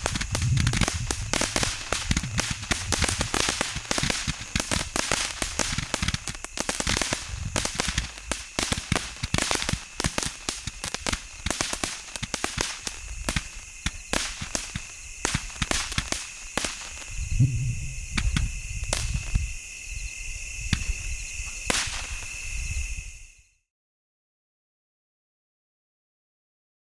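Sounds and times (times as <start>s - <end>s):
firework cracks: 0.0s - 19.5s, 21.6s - 22.5s
deep firework booms: 0.0s - 19.6s.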